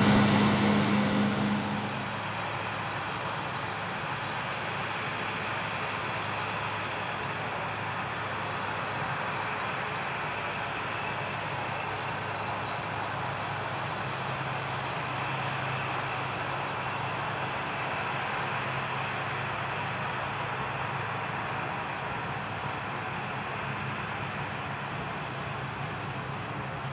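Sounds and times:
threshing machinery noise: 0.0 - 2.4
combine harvester engine hum: 0.0 - 2.7.

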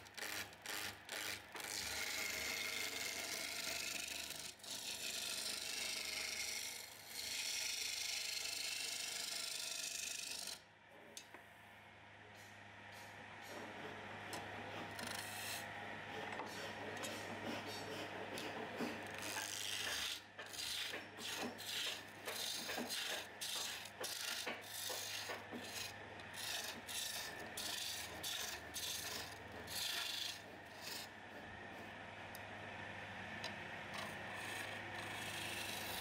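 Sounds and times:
tool scraping wood: 0.0 - 10.6, 12.4 - 32.0, 33.9 - 36.0
lathe motor hum: 13.5 - 36.0.

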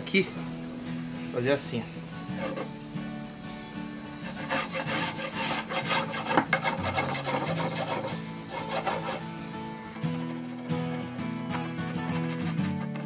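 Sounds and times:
spokeshave cutting wood: 4.2 - 13.0.

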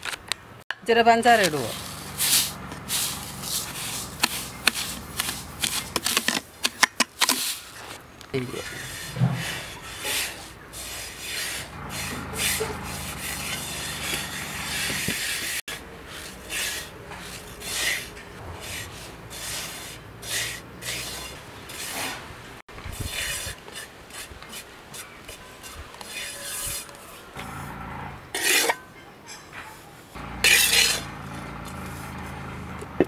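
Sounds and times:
hand rasping dry powder: 1.4 - 6.4, 8.4 - 22.2, 22.9 - 27.3, 30.2 - 31.1.

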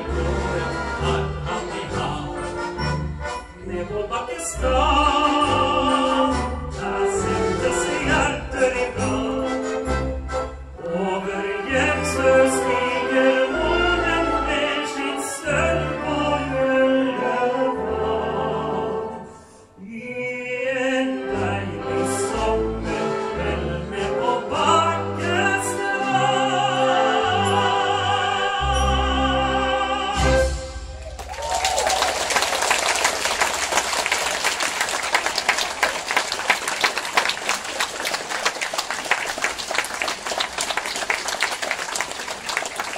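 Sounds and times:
man singing with orchestra: 0.0 - 31.0
audience applause: 31.0 - 42.9.

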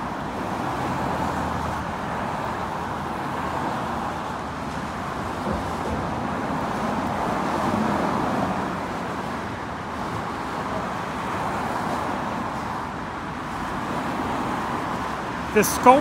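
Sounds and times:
road traffic hum: 0.0 - 16.0.

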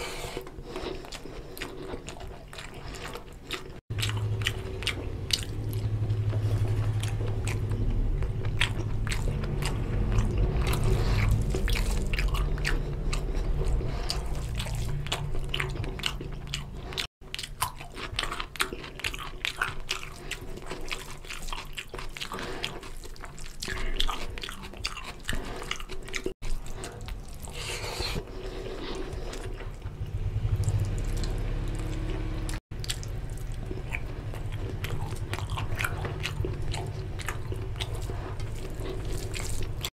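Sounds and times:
wet chewing and lip-smacking: 0.0 - 39.9.

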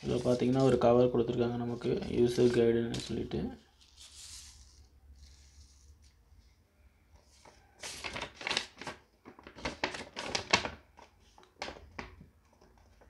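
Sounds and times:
paper rustling and crackling: 0.0 - 0.9, 1.6 - 6.2, 7.2 - 13.0.

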